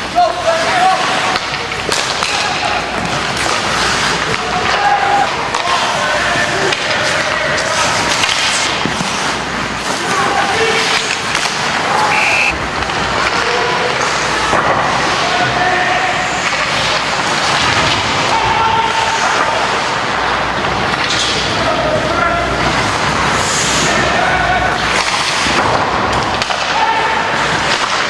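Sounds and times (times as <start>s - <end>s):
spectators talking and calling out: 10.0s - 13.3s
crowd din: 10.8s - 13.4s.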